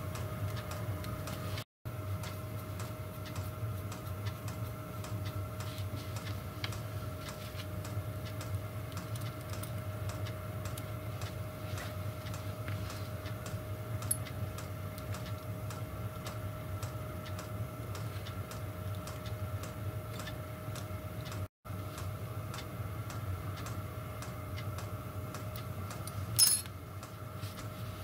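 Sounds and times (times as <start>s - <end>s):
heater clicking: 0.0s - 27.7s
heater hum and whine: 0.0s - 28.0s
spanner clinking against tools: 26.0s - 26.7s.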